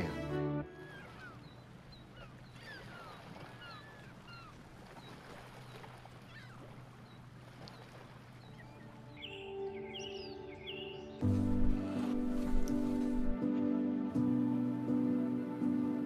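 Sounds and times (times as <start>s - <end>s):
soft music: 0.0s - 2.2s, 8.3s - 16.0s
small waves lapping over pebbles: 1.0s - 8.8s.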